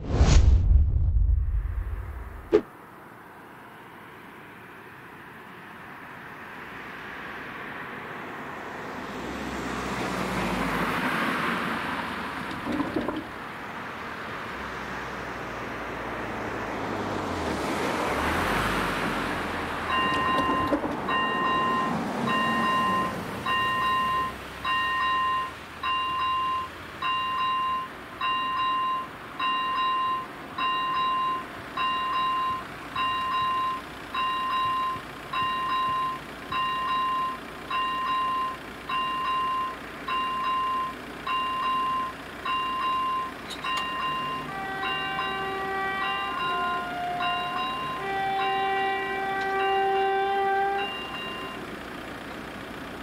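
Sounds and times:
car driving over crossing: 0:06.7 - 0:53.0
electronic warning bell ringing: 0:19.9 - 0:51.7.

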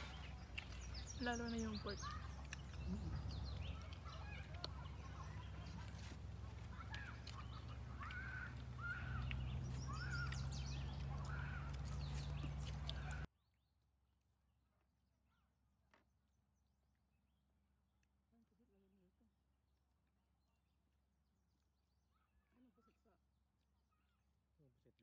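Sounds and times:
bird calling: 0:00.0 - 0:13.3
low outdoor rumble: 0:00.0 - 0:13.3.

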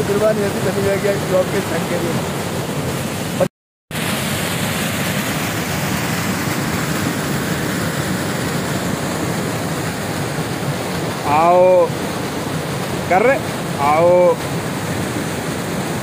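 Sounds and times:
water rushing over rocks: 0:00.0 - 0:16.0.

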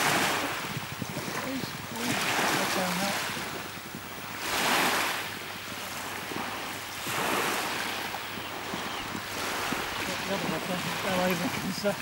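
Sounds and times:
small waves washing up beach: 0:00.0 - 0:12.0.

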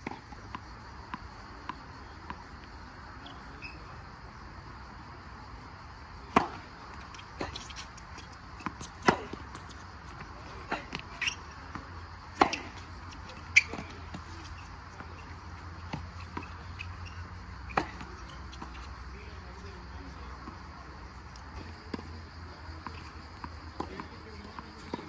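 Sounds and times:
tennis balls struck by rackets: 0:06.2 - 0:20.7.

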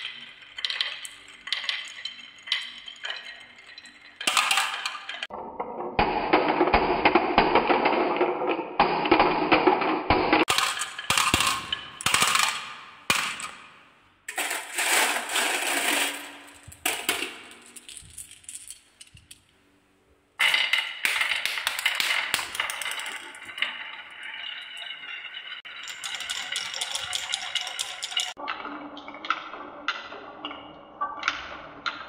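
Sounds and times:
glass marbles rolling on wooden tracks: 0:00.0 - 0:05.3, 0:14.3 - 0:19.4, 0:20.4 - 0:29.0
marbles knocking into toy truck: 0:20.4 - 0:23.5.

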